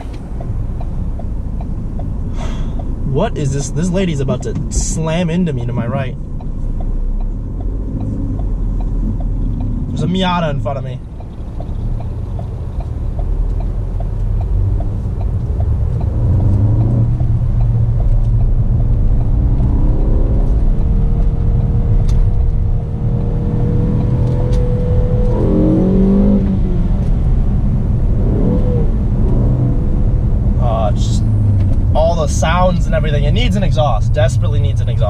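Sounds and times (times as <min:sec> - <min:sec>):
car engine revving hard: 0:18.8 - 0:35.0.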